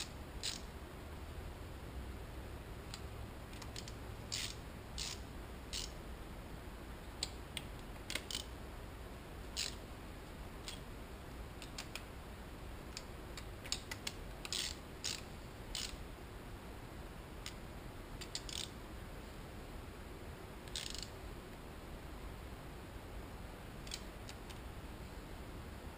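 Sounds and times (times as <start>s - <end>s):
socket ratchet clicking: 0.0s - 0.7s, 2.9s - 6.0s, 7.2s - 8.5s, 9.5s - 9.9s, 10.6s - 10.8s, 11.6s - 12.1s, 12.9s - 16.0s, 18.2s - 18.7s, 20.6s - 21.1s, 23.8s - 24.6s.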